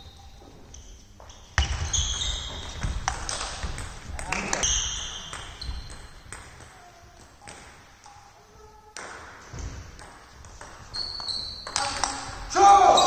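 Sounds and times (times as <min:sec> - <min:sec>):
short squeaks: 0:10.9 - 0:12.0.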